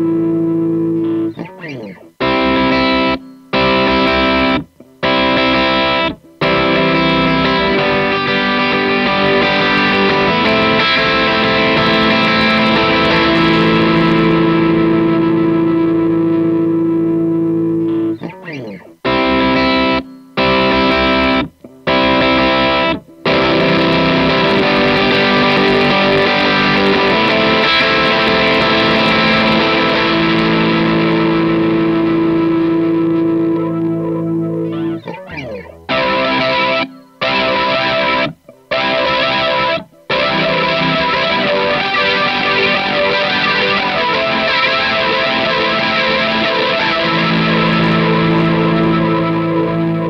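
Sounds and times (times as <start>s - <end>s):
distorted electric guitar chords: 0.0s - 50.0s.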